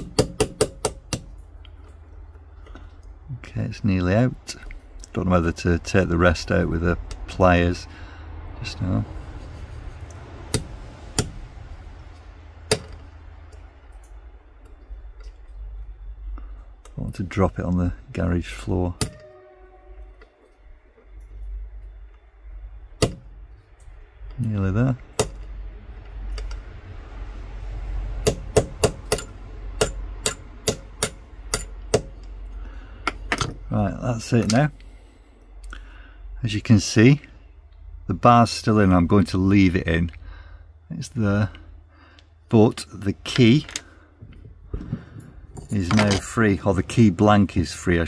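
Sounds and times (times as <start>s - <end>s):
hammer tapping on metal punch: 0.0s - 1.4s, 19.0s - 19.3s, 23.0s - 23.2s, 25.2s - 25.4s, 28.2s - 32.2s
steady low hum: 0.0s - 48.0s.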